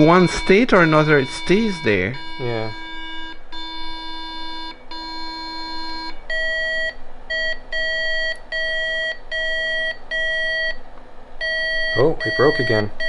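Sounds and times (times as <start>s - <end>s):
computer speaker beeps: 0.0s - 2.9s, 11.4s - 13.0s.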